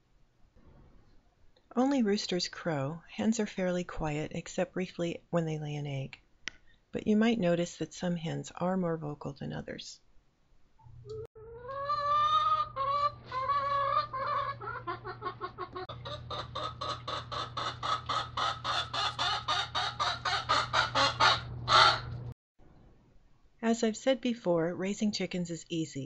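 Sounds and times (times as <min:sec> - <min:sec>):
hen cackling: 0:11.4 - 0:22.2.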